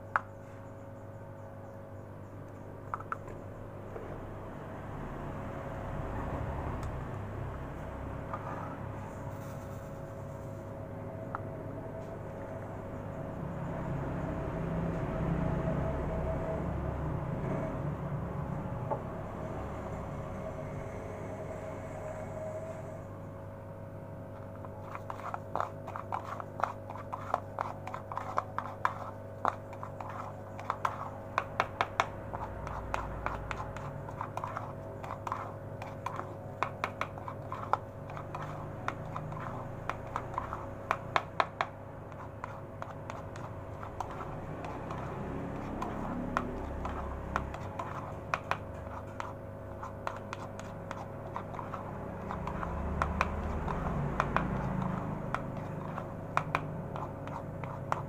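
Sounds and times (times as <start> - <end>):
steady low hum: 0.0 - 58.0
spoon scraping pellets in plastic bowl: 24.3 - 58.0.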